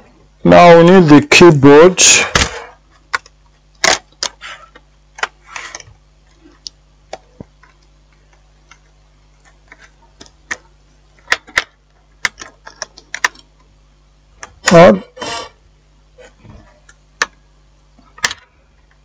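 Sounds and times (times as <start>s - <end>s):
laptop parts clicking and tapping: 3.0s - 5.9s, 6.6s - 13.5s, 16.8s - 17.4s, 18.2s - 18.5s.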